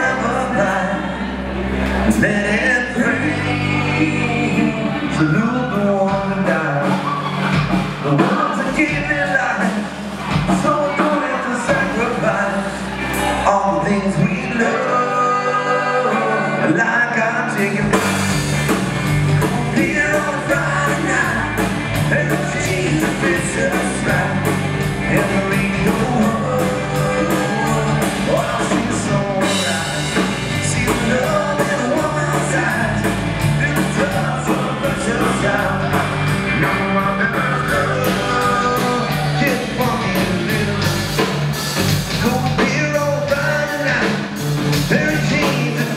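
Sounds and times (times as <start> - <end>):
country-rock band playing: 0.0 - 45.9
drums and cymbals: 6.0 - 13.5, 17.6 - 45.9.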